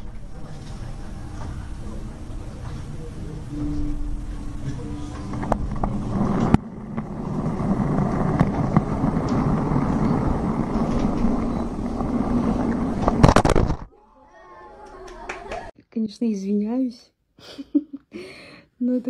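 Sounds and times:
model train motor and wheels rattling: 0.0s - 13.9s.

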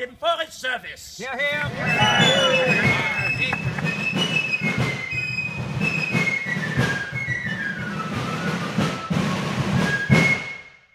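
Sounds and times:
steady drumming: 1.3s - 10.4s
fifes playing: 1.4s - 4.3s.

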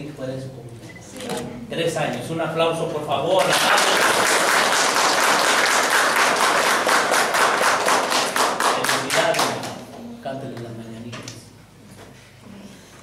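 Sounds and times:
people clapping: 3.3s - 9.9s.

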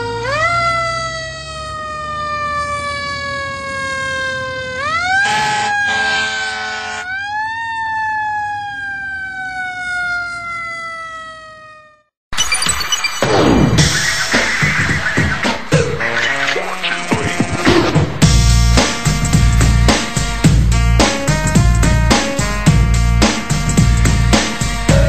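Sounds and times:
siren rising and falling: 0.0s - 15.6s.

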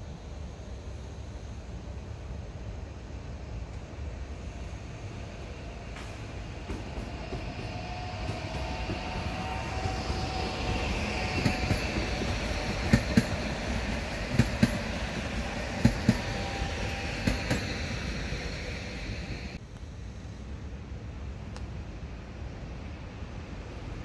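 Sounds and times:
passenger train rumbling past: 0.0s - 24.0s
train wheels clacking: 5.8s - 19.6s.

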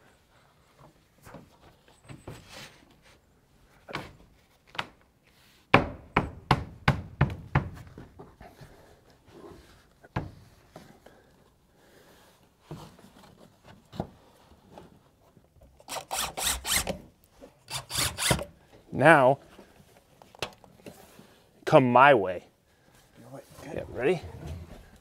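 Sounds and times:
hammer knocking on plastic boards: 5.8s - 7.8s.

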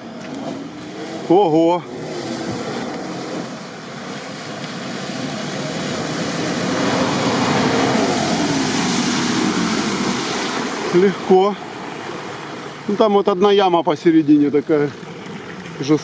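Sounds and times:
car engine revving: 0.0s - 11.3s
mud and water splashing: 0.0s - 16.0s.

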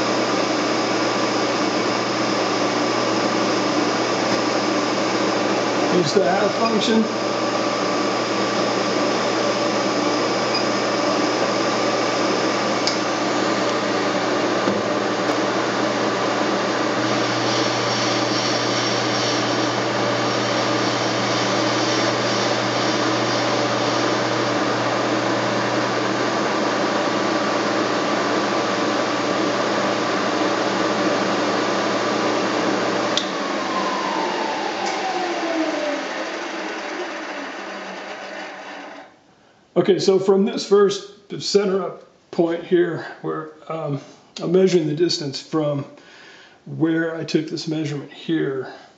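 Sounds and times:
milling machine motor whine: 0.0s - 39.1s.

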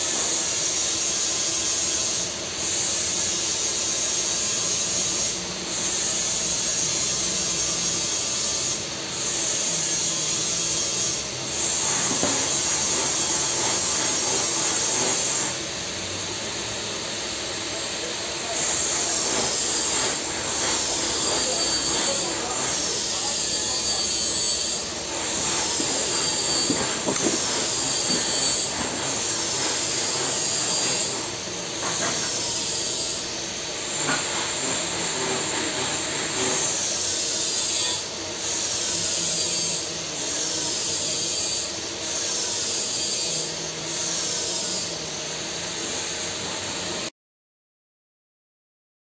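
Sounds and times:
welding arc hissing: 0.0s - 47.1s.

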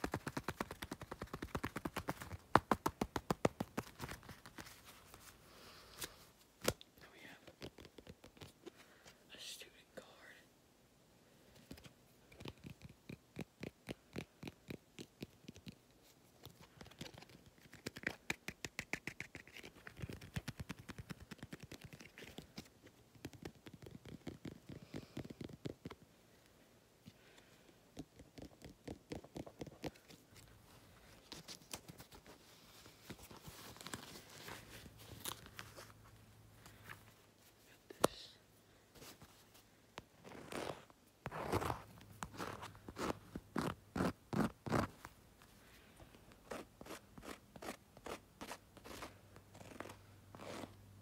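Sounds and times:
fingernail tapping on plastic card: 12.3s - 15.8s.

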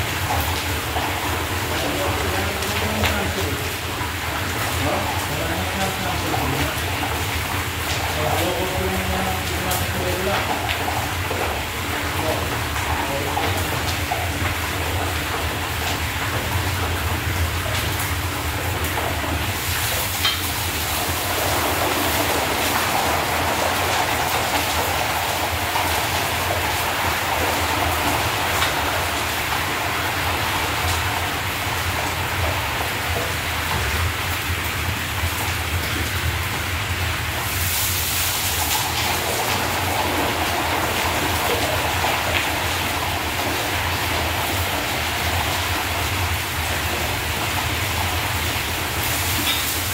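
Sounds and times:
meat sizzling in hot oil: 17.0s - 23.9s, 37.3s - 40.5s, 47.9s - 49.9s.

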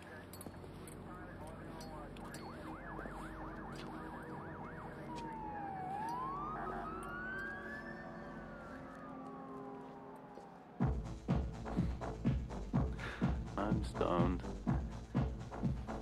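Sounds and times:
siren yelp and wail: 0.8s - 10.8s.

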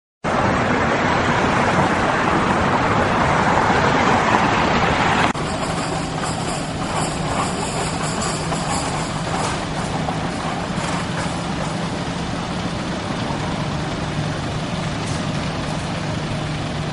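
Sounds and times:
road traffic noise: 0.2s - 16.9s
car passing close by: 0.3s - 5.4s
fire engine idling: 5.3s - 16.9s.

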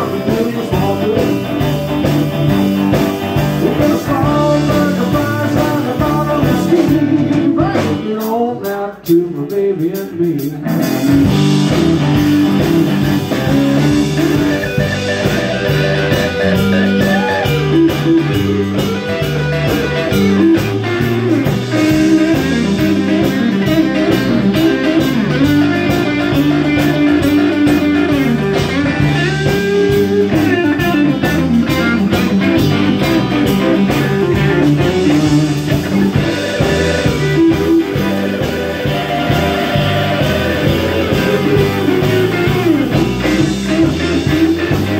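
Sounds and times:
electric guitar lead: 0.0s - 8.2s, 10.4s - 44.9s
blues-rock band playing: 0.0s - 44.9s.

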